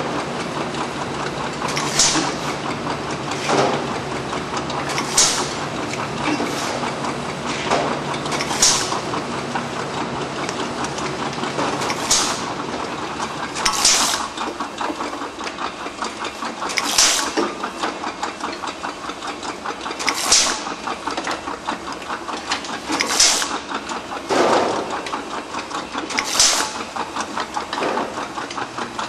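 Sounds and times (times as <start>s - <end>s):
rapid machine rattle: 0.0s - 29.0s
pneumatic nozzle hissing sprays: 1.8s - 2.6s, 8.4s - 9.0s, 12.0s - 12.5s, 13.7s - 14.3s, 16.8s - 17.4s, 20.1s - 20.6s, 23.0s - 23.5s, 26.2s - 26.8s.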